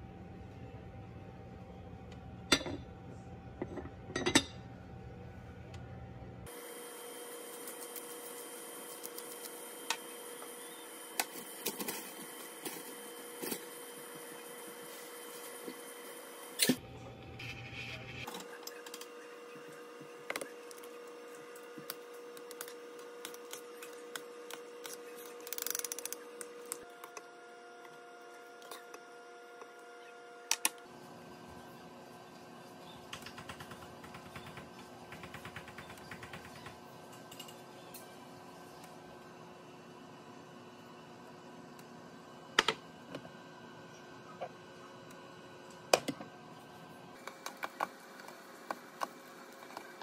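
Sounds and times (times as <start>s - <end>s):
induction cooktop humming: 0.0s - 50.0s.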